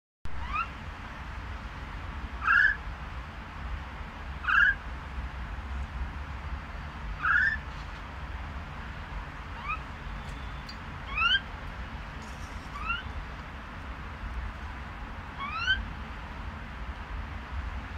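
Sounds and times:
bird whistled calls: 0:00.4 - 0:00.7, 0:02.4 - 0:02.8, 0:04.5 - 0:04.8, 0:07.2 - 0:07.6, 0:09.6 - 0:11.4, 0:12.6 - 0:13.2, 0:15.4 - 0:15.8.

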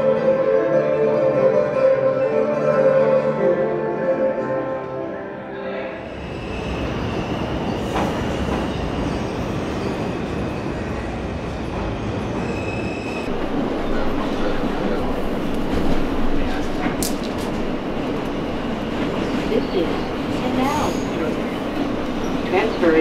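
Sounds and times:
subway car running noise: 0:00.0 - 0:23.0
train wheels rumbling on rails: 0:06.4 - 0:23.0
high wheel squeal: 0:12.0 - 0:13.3, 0:19.1 - 0:22.7.

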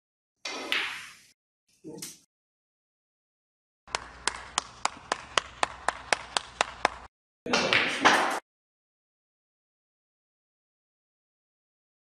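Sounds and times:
sharp hand claps: 0:03.9 - 0:08.4.

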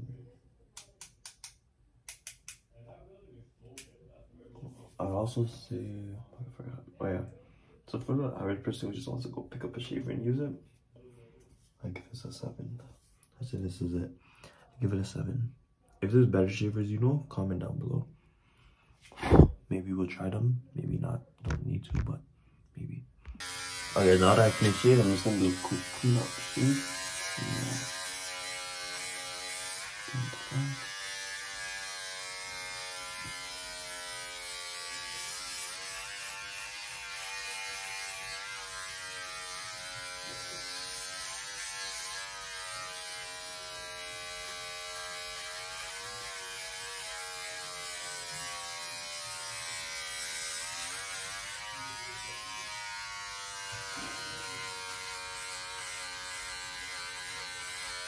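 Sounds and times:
electric shaver buzzing: 0:23.3 - 0:58.0.

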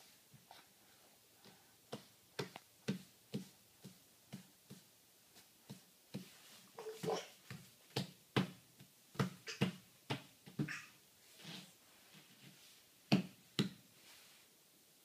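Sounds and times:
baby feet kicking foam mat: 0:01.4 - 0:10.8.

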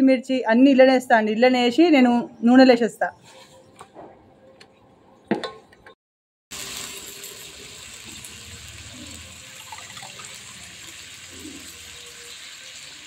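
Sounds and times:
vegetables sizzling in hot oil: 0:06.5 - 0:13.0.

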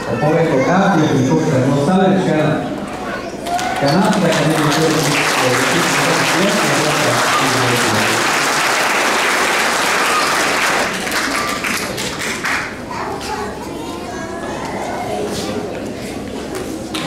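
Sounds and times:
people applauding: 0:03.4 - 0:12.9.

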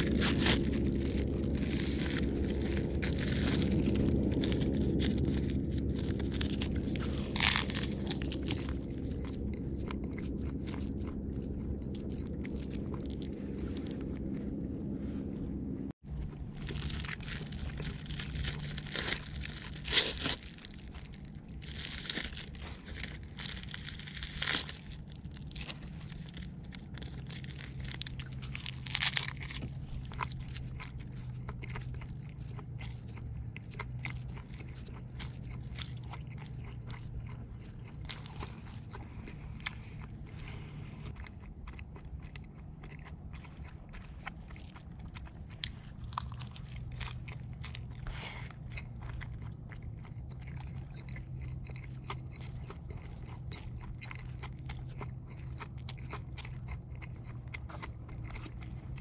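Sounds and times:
crisp seaweed crunching: 0:00.0 - 0:14.5, 0:16.1 - 0:59.0
biting and chewing rice ball: 0:00.0 - 0:15.0, 0:15.9 - 0:59.0.

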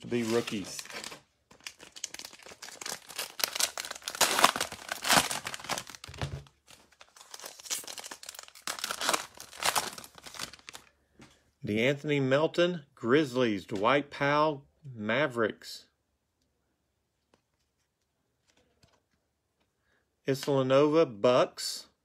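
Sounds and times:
plastic wrapper tearing and crinkling: 0:00.0 - 0:10.9.

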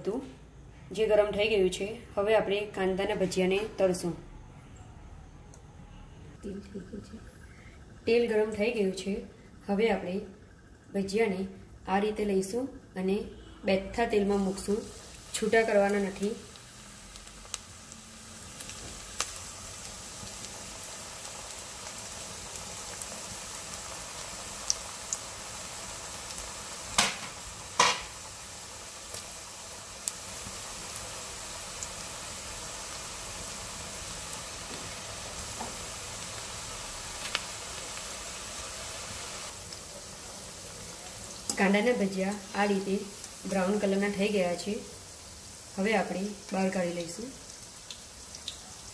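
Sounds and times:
fritters sizzling in hot oil: 0:06.4 - 0:48.9
oil popping and crackling: 0:14.6 - 0:43.8, 0:45.0 - 0:48.9.

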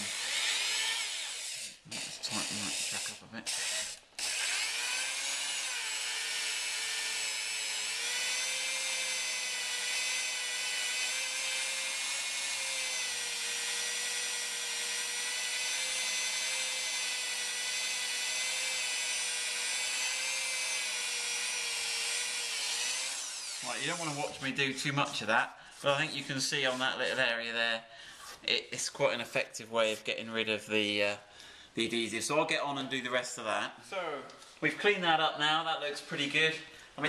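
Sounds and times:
electric drill whining: 0:00.0 - 0:24.5.

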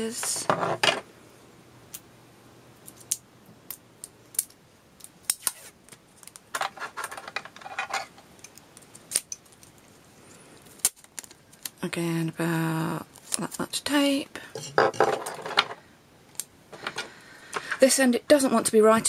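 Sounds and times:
tape rustling and scraping: 0:04.3 - 0:11.8.

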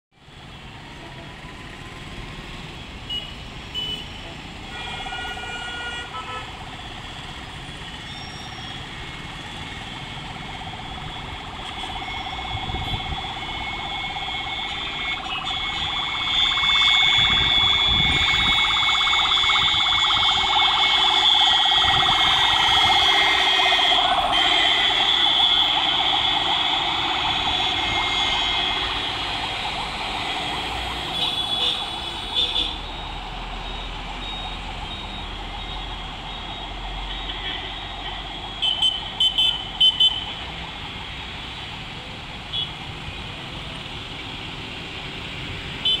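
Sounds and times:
traffic noise: 0:00.1 - 0:46.0
ambulance siren: 0:00.2 - 0:46.0
vehicle horns honking: 0:03.1 - 0:06.5, 0:14.4 - 0:18.7, 0:20.8 - 0:26.5, 0:27.2 - 0:29.4, 0:31.1 - 0:32.8, 0:37.1 - 0:40.3.

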